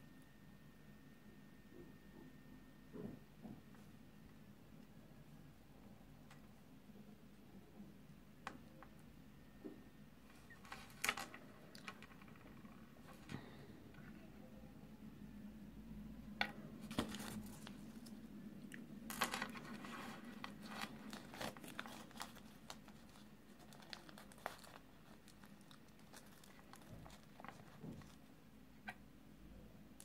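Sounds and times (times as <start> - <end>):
foil wrapper crinkling: 19.2 - 28.2.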